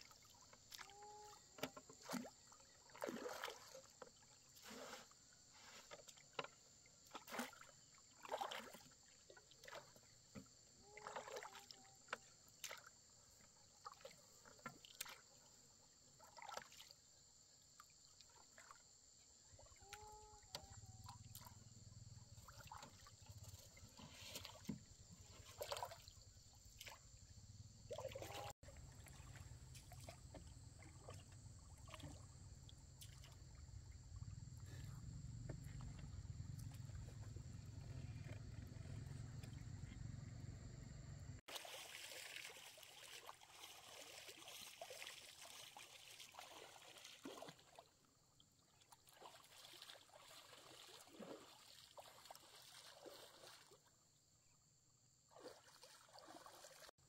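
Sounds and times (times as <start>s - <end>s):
water splashing and dripping: 0.0s - 5.0s, 5.9s - 12.9s, 13.8s - 15.4s, 22.4s - 27.1s, 27.9s - 34.2s, 41.5s - 47.9s, 48.7s - 53.8s, 55.3s - 56.9s.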